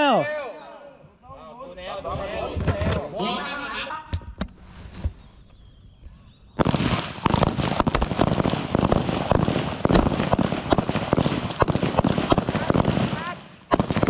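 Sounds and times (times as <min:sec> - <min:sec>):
rapid rifle fire: 0:06.6 - 0:14.0.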